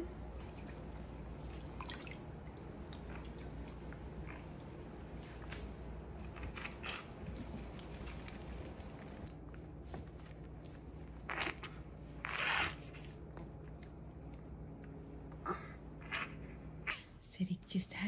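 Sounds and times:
dog rustling on a towel: 3.4 - 13.5.

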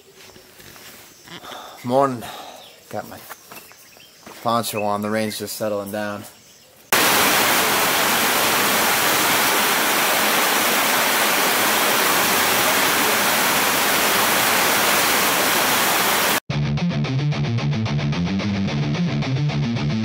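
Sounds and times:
heavy rain: 6.9 - 16.4
rock music with electric guitar: 16.5 - 20.0.

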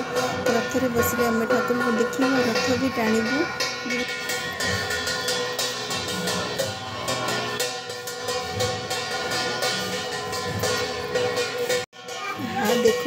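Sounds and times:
drums: 0.0 - 13.0
metallic percussion music: 0.0 - 13.0.

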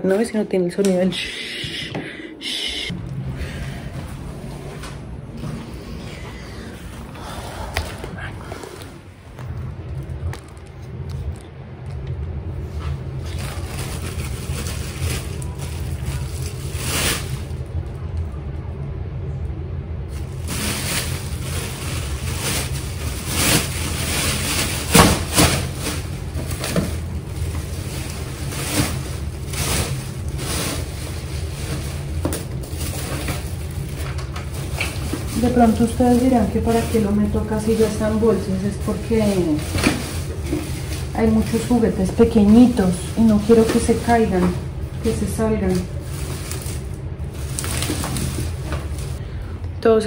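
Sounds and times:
steady low hum: 0.0 - 50.0
plastic trash bags rustling: 12.6 - 17.9, 20.0 - 49.2.

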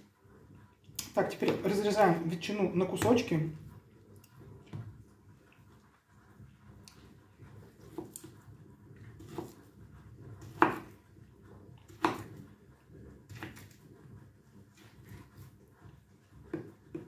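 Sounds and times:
knife slicing ham: 7.7 - 8.4, 9.1 - 11.1, 11.8 - 12.6, 13.3 - 13.9.

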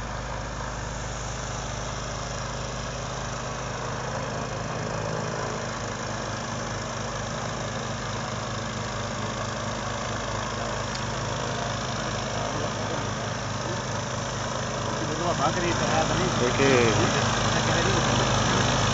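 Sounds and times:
boat diesel engine running: 0.0 - 18.9
propeller and water rushing: 12.8 - 18.9.

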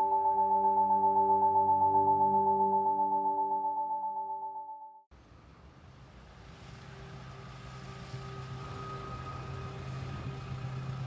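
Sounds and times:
low engine hum: 5.2 - 11.0.

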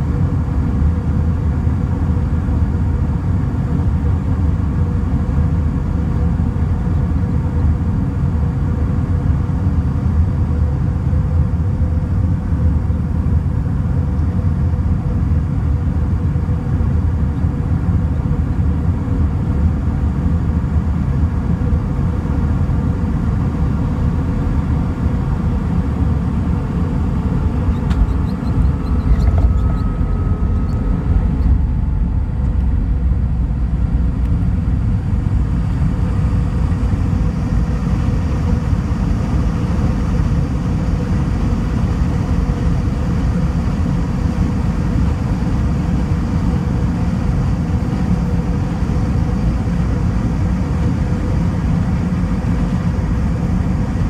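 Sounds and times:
aircraft engine and airflow rumble: 0.0 - 54.0.

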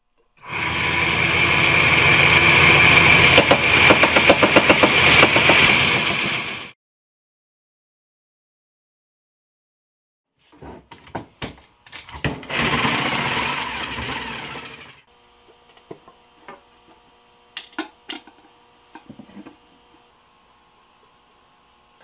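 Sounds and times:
jigsaw cutting wood: 0.4 - 6.7, 11.9 - 16.3.

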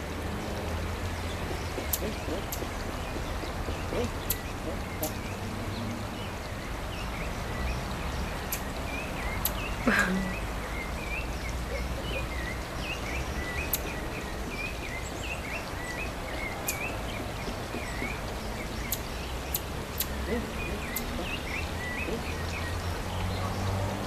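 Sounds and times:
sharp high ticks: 1.0 - 5.5, 8.5 - 8.8, 16.6 - 21.8.

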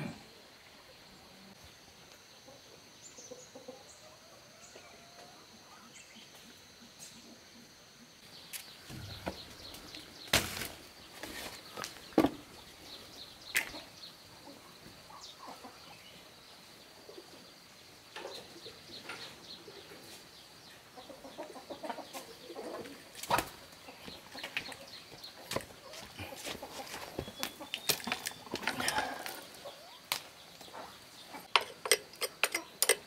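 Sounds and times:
chickens clucking: 2.3 - 7.7, 13.5 - 16.1, 18.1 - 33.0.

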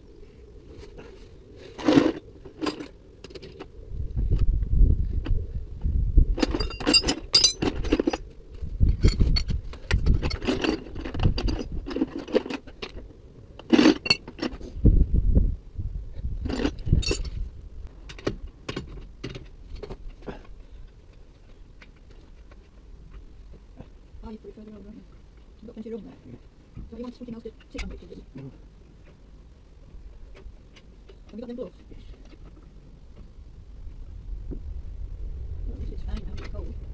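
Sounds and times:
metal hand tools clinking: 6.4 - 8.2, 17.0 - 17.3.

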